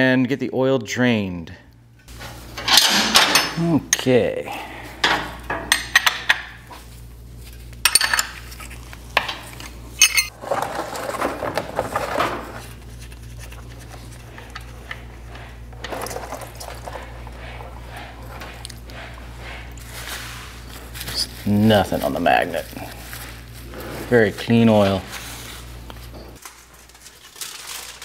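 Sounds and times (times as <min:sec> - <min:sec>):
metal hand tools clinking: 0:10.0 - 0:10.3
plastic drain pan shuffled: 0:10.3 - 0:12.8.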